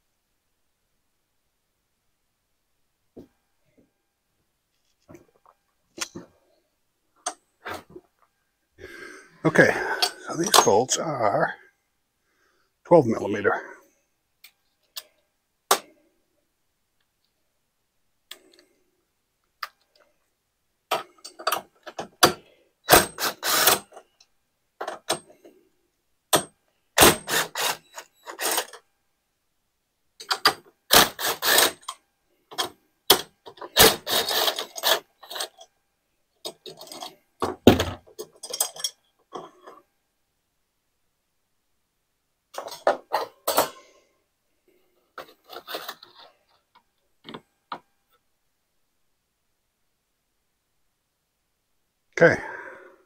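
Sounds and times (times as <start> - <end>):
cordless power tool bursts: 22.9 - 23.9, 27.0 - 28.7, 30.9 - 31.8, 33.7 - 35.0.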